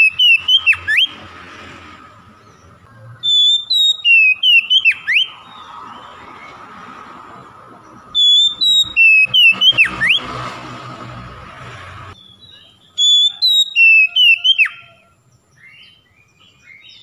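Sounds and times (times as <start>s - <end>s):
bird singing whistled notes: 0.0s - 1.3s, 2.4s - 6.6s, 7.9s - 10.3s, 12.2s - 17.0s.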